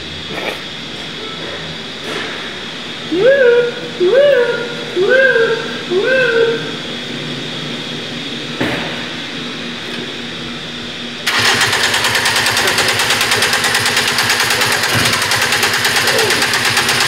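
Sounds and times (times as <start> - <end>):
steady hum: 0.0 - 17.0
engine running with fast pulse: 11.2 - 17.0.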